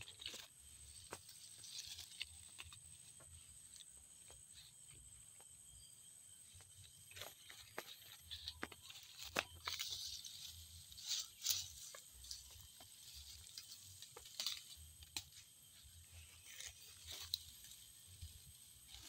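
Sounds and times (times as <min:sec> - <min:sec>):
dry grass rustling: 0:00.0 - 0:05.1, 0:06.4 - 0:19.0
plant stems snapping: 0:13.4 - 0:15.4.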